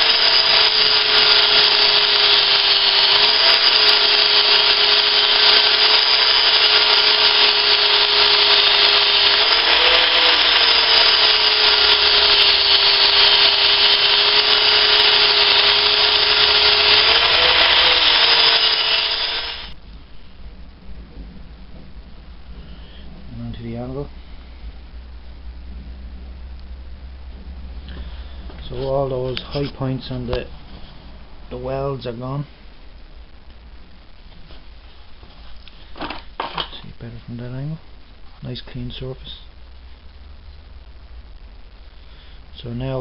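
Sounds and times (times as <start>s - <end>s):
angle grinder grinding metal: 0.0s - 19.8s.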